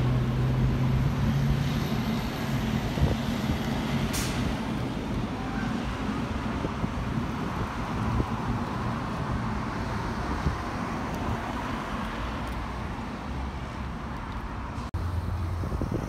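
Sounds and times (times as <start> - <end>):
road traffic noise: 0.0 - 16.0
wind buffeting microphone: 2.6 - 12.2, 15.3 - 16.0.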